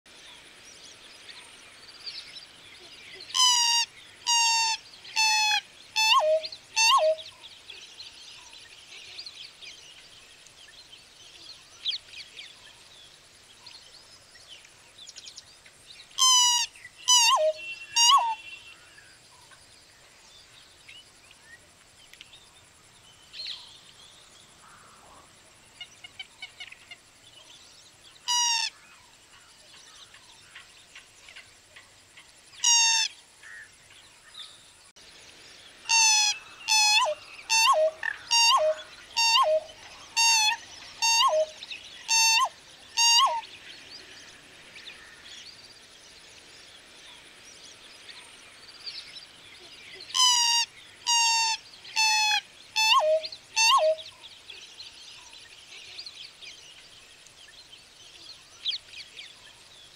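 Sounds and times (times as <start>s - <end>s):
faint bird chirps: 1.2s - 12.9s, 16.1s - 19.6s, 35.8s - 45.8s, 47.0s - 59.9s
bird calling: 3.2s - 7.4s, 16.2s - 19.0s, 28.3s - 28.8s, 35.9s - 43.5s, 50.0s - 54.2s.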